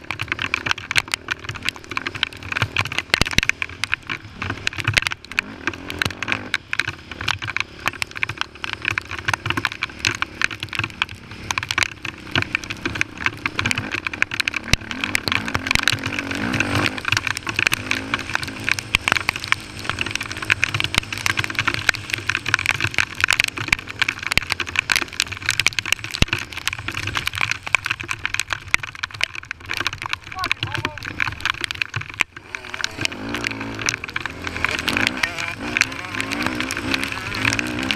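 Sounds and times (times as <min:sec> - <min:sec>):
crackle of clicks and rattles: 0:00.0 - 0:37.9
quad engine revving: 0:13.7 - 0:21.9, 0:32.4 - 0:37.9.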